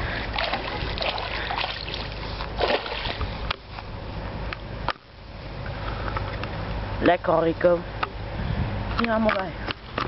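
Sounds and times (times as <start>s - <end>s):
fish splashing in water: 0.0s - 3.4s.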